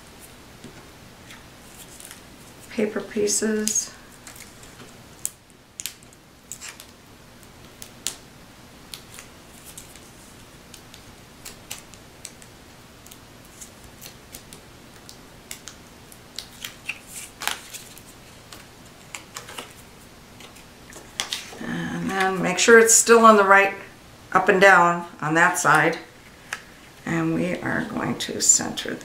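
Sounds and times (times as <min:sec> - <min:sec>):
paper clicks and crinkles: 0:01.2 - 0:02.8, 0:03.6 - 0:08.2, 0:08.9 - 0:21.6.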